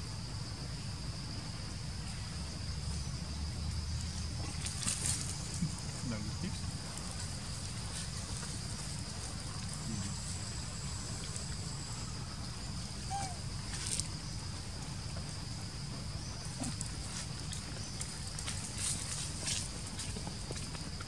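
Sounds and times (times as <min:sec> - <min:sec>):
high insect drone: 0:00.0 - 0:21.0
rustles on leaf litter: 0:04.4 - 0:11.6, 0:16.5 - 0:20.2.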